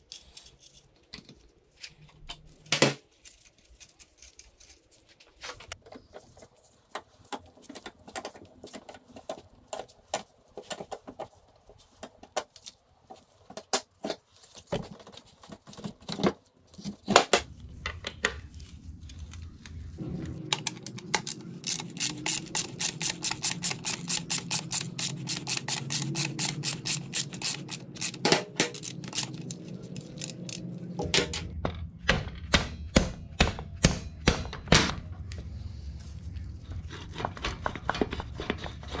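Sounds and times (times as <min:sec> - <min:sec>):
ratchet wrench clicking: 0:21.2 - 0:29.4.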